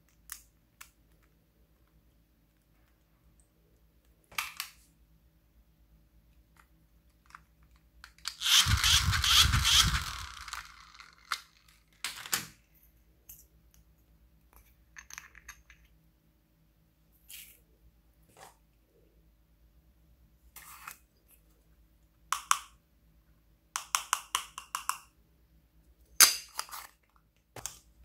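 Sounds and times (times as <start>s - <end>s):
toy fan whirring: 8.2s - 11.7s
airflow buffeting microphone: 8.4s - 10.5s.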